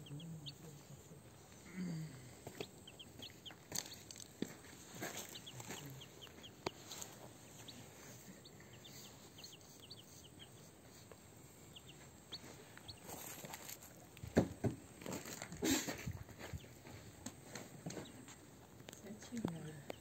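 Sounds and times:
ducklings and chick peeping: 0.0 - 1.6, 2.4 - 14.6
thumps and rustles: 13.1 - 18.4.

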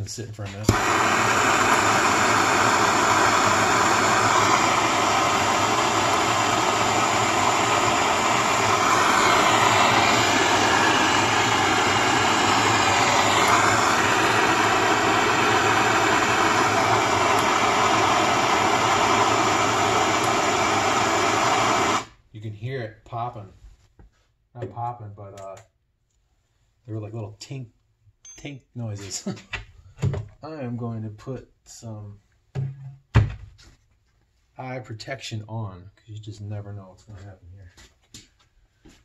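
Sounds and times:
gas torch flame hissing: 0.6 - 22.2.

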